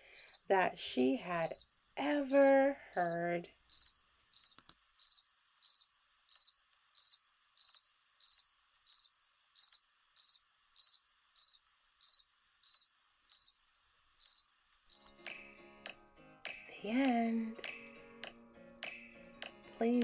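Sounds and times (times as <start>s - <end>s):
cricket chirping: 0.1s - 0.5s, 1.4s - 15.2s.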